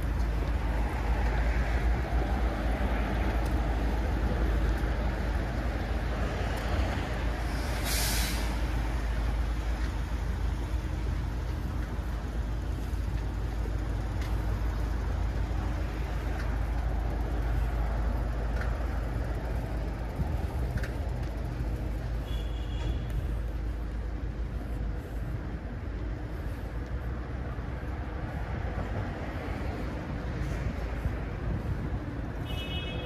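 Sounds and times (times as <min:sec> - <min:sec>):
road traffic: 0:00.0 - 0:33.0
air brakes hissing: 0:07.4 - 0:08.8.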